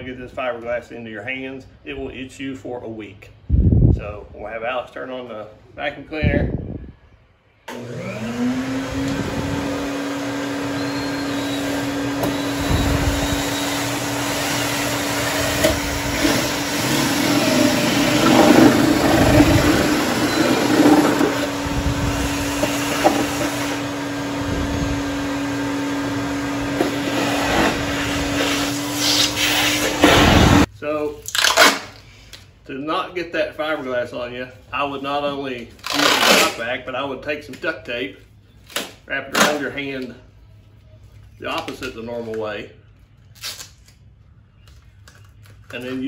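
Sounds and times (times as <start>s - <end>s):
drill boring through fiberglass: 7.7s - 30.7s
shop vacuum running: 7.7s - 30.7s.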